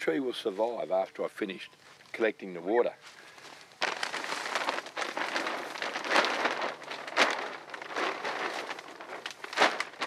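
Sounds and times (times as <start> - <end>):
plastic bag crinkling and rustling: 3.1 - 10.0.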